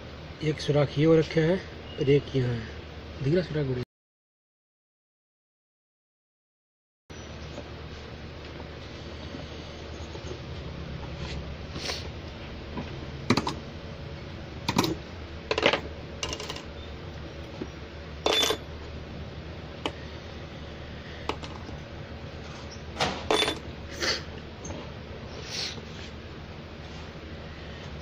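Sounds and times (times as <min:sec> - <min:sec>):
low steady hum: 0:07.1 - 0:28.0
metal parts clinking on tile floor: 0:18.2 - 0:18.6, 0:23.3 - 0:23.6.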